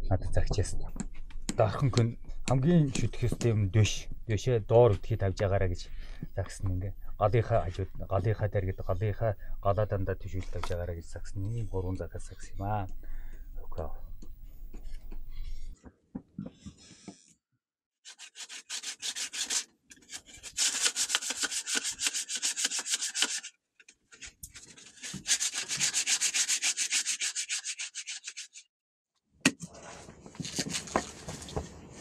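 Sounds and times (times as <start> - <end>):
hand sanding back and forth: 18.1 - 19.7, 20.3 - 23.5, 25.0 - 28.6.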